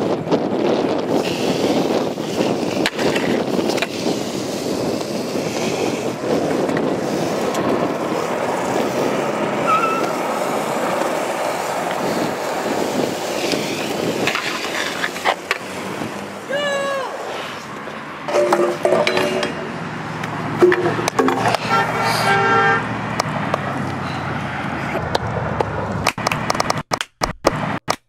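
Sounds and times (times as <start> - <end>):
scooter wheels rolling on asphalt: 0.0 - 26.8
scooter clacking on ground: 18.2 - 19.8, 20.6 - 21.7.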